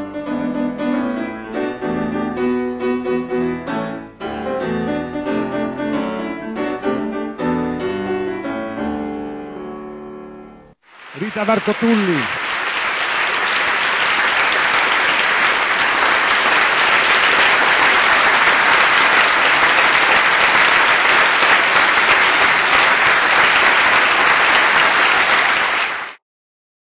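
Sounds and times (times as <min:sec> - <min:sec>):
audience applauding: 0:10.9 - 0:26.2.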